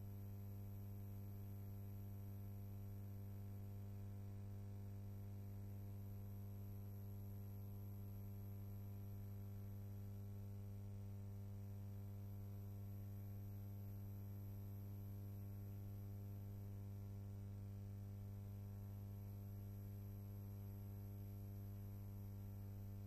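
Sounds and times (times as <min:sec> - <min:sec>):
low electrical hum: 0:12.1 - 0:23.0.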